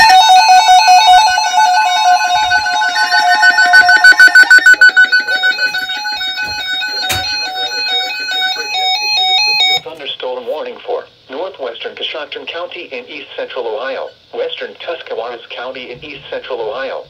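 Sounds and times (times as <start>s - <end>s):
electronic alarm beeping: 0.0s - 9.8s
steady electronic tone: 0.0s - 9.8s.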